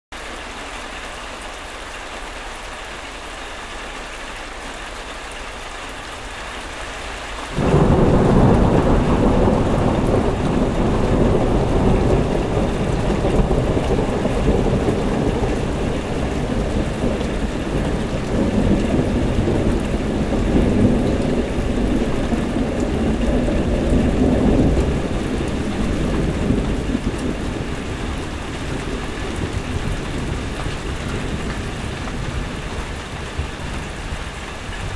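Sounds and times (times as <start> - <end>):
steady rain falling: 0.1 - 34.9
thunder rumbling: 7.5 - 34.9.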